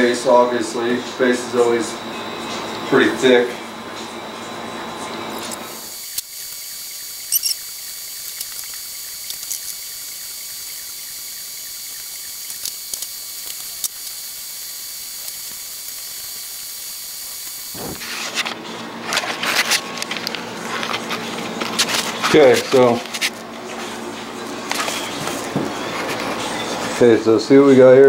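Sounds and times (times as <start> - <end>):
steady high hiss: 0.0 - 18.1.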